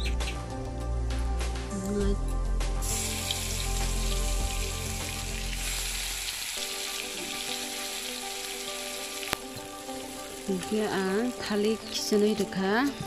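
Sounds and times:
onions sizzling in hot oil: 2.8s - 12.6s.

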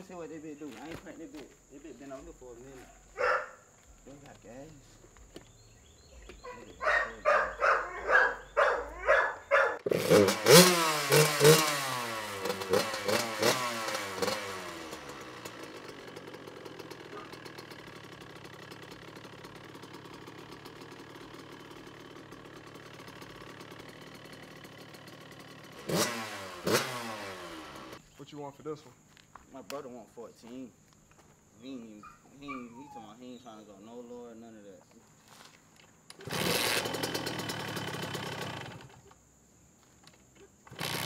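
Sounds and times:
two-stroke motorcycle engine starting: 7.5s - 28.0s, 36.1s - 39.2s, 40.6s - 41.0s.

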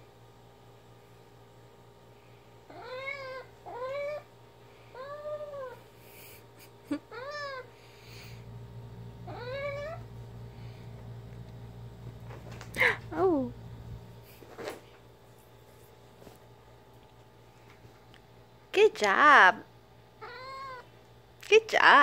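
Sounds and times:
cat meowing: 2.7s - 4.3s, 7.1s - 7.7s, 9.3s - 10.0s, 20.2s - 20.9s.

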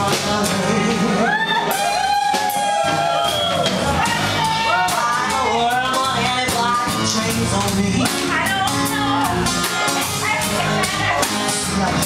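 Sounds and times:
drum kit: 0.0s - 12.0s
electric guitar: 0.0s - 12.0s
woman singing into a microphone: 8.0s - 9.4s, 10.0s - 12.0s.

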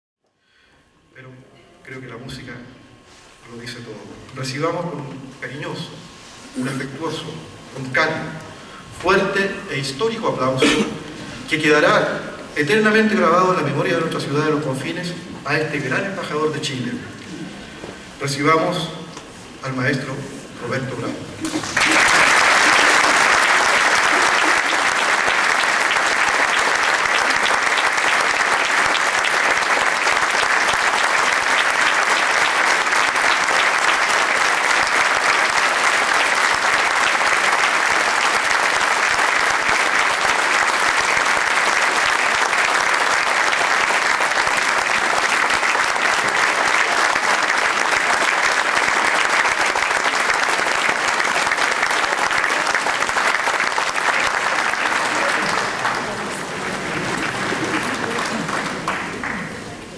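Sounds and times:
audience applauding: 21.4s - 59.9s.

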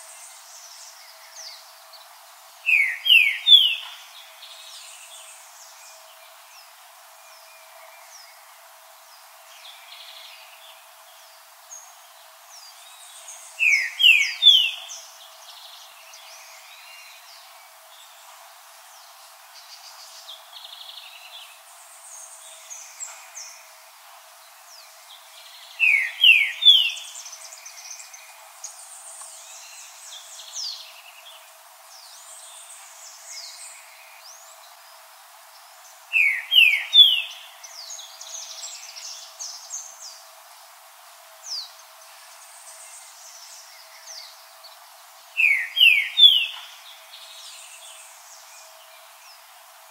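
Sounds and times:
bird singing rising whistled notes: 2.6s - 5.9s, 12.6s - 17.6s, 24.7s - 31.2s, 36.1s - 40.2s, 45.3s - 48.8s.

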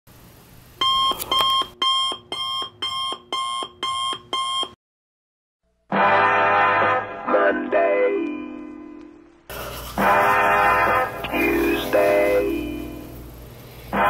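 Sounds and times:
electronic alarm beeping: 0.8s - 4.8s
music: 5.7s - 13.2s.

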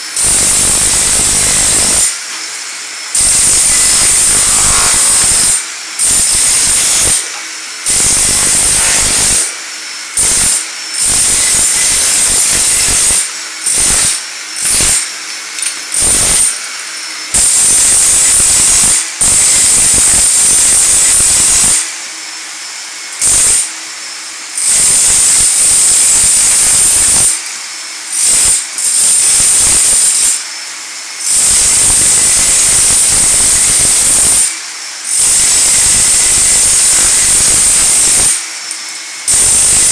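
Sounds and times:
dust vacuum hissing: 0.0s - 15.1s, 35.7s - 39.9s
power chipping hammer chiseling tile: 0.0s - 39.9s.

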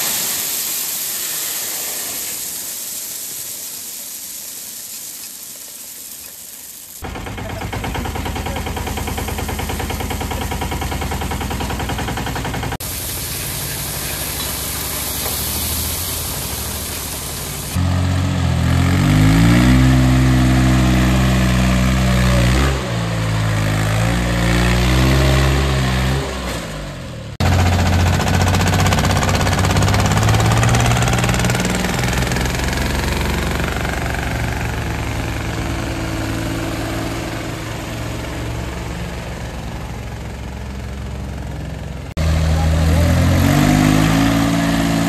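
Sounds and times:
tractor engine running: 7.0s - 24.1s, 26.8s - 45.0s
diesel engine revving: 7.0s - 45.0s.

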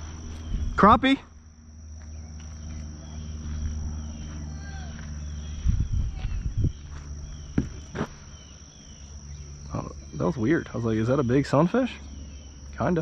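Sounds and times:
insects droning: 0.0s - 13.0s
low thumps: 7.4s - 8.2s.

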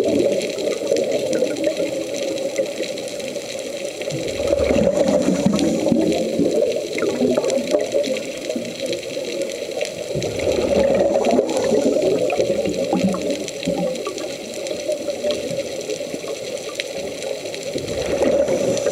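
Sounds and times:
air bubbling underwater: 4.1s - 8.8s, 10.1s - 14.3s, 17.7s - 18.9s.

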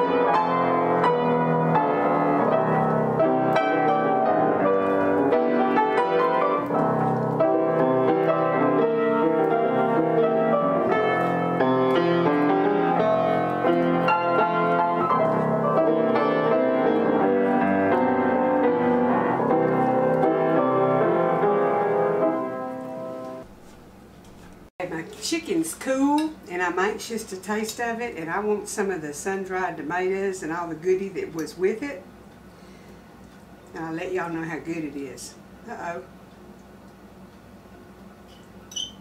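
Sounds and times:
upright piano playing: 0.0s - 23.5s.

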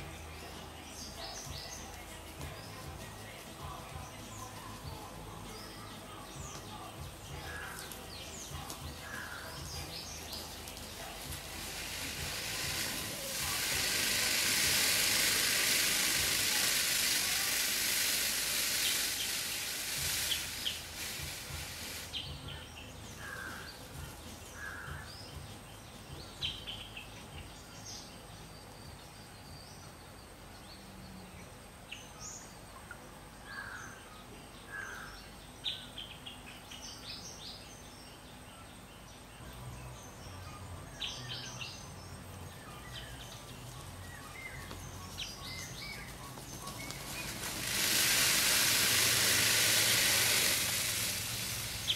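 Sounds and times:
loud high buzzing hiss: 0.0s - 28.2s, 39.4s - 51.9s
faint high insect whine: 0.0s - 51.9s
bird chirps: 21.7s - 51.9s.

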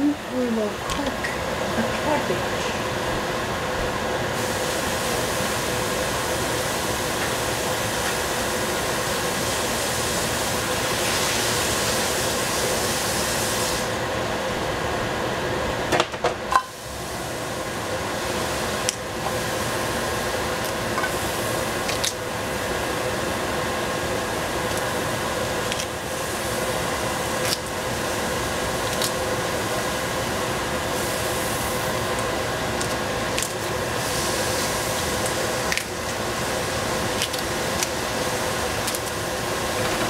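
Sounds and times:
extractor fan whirring: 0.0s - 40.0s.

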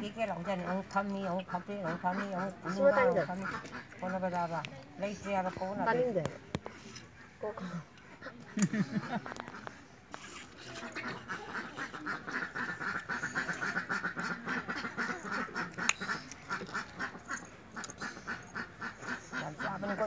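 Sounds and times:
ducks quacking: 0.0s - 5.9s, 10.6s - 20.0s.

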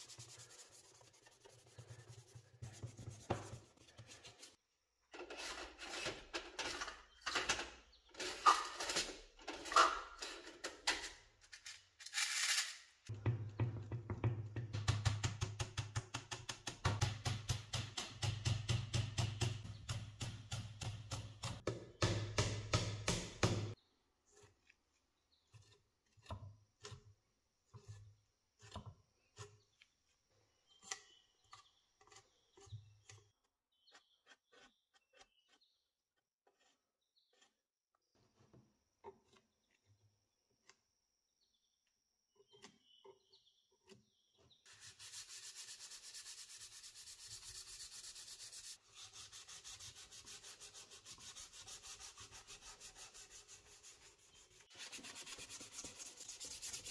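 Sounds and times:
sandpaper rubbing wood: 0.0s - 4.6s, 44.7s - 56.9s.

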